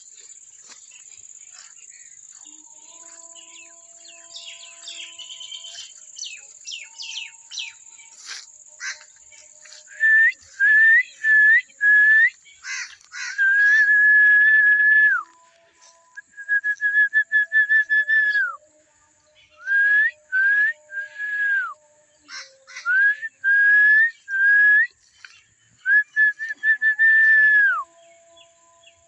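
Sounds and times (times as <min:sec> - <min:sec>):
birds chirping: 0:00.0 - 0:14.0
high insect buzz: 0:00.0 - 0:25.8, 0:26.5 - 0:29.0.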